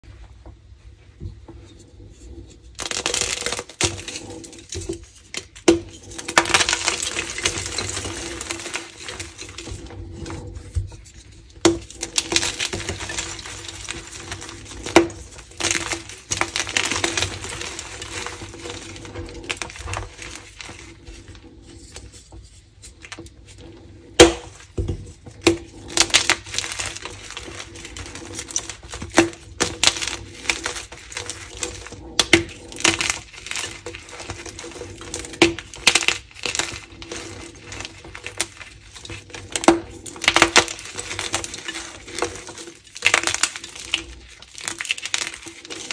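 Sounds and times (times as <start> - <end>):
chalk crunching: 2.3 - 22.1.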